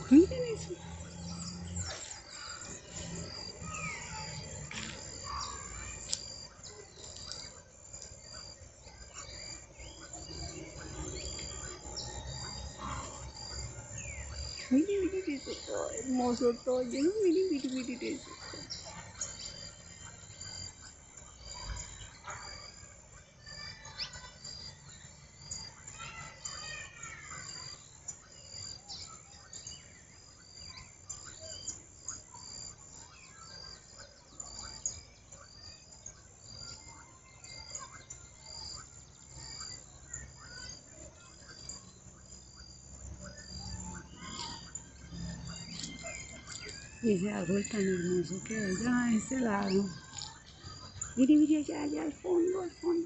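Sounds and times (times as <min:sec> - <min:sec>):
birds chirping and calling: 0:00.0 - 0:53.0.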